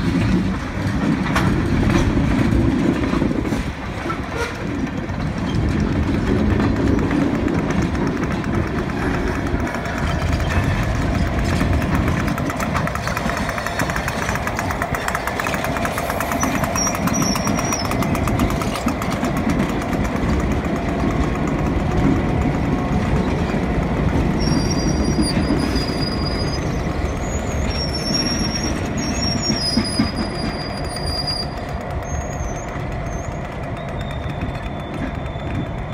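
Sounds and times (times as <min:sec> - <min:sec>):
diesel locomotive engine drone: 0:00.0 - 0:35.9
wheels rumbling on rails: 0:00.0 - 0:35.9
high-pitched wheel squeals: 0:16.2 - 0:18.3, 0:24.3 - 0:35.9.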